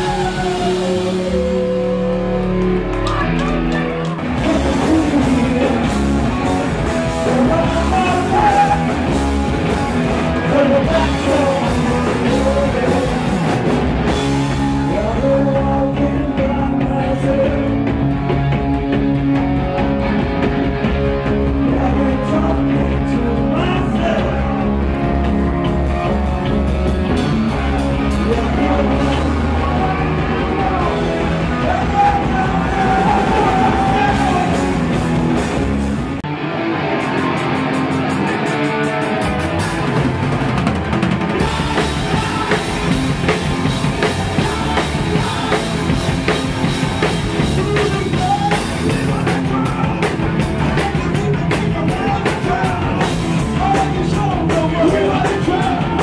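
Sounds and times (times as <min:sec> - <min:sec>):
person singing: 0:00.0 - 0:18.2, 0:21.3 - 0:25.3, 0:27.5 - 0:34.8, 0:41.3 - 0:56.0
distorted electric guitar: 0:00.0 - 0:56.0
punk rock band playing live: 0:00.0 - 0:56.0.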